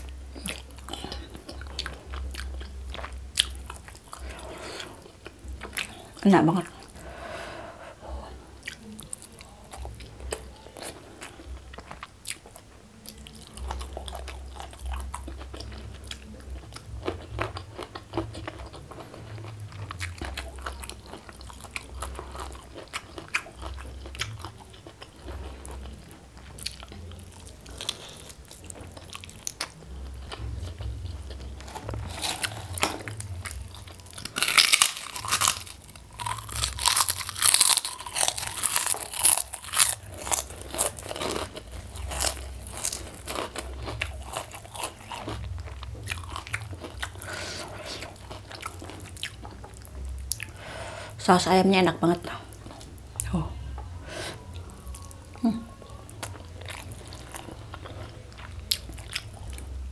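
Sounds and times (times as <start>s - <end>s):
chewing and wet mouth sounds: 0.0s - 7.0s, 8.1s - 59.9s
crunching crisp cracker: 17.0s - 50.5s.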